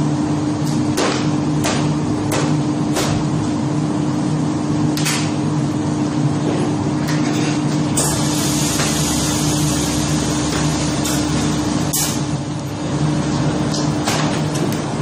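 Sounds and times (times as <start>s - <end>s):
machinery humming: 7.8s - 15.0s
air hissing: 8.0s - 12.3s.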